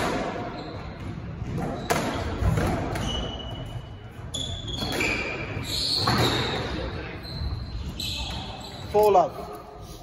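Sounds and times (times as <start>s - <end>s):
shoes squeaking on wooden floor: 2.9s - 9.4s.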